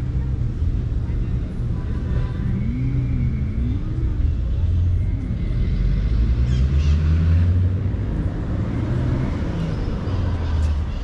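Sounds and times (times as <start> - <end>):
road traffic rumble: 0.0 - 11.0
vehicle engine accelerating: 4.9 - 10.5.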